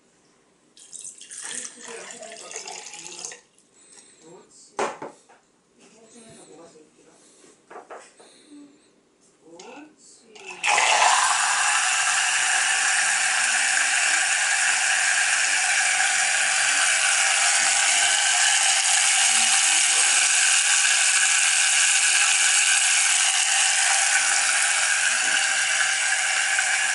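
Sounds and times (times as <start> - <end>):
shaker bottle motor whirring: 10.5 - 26.9.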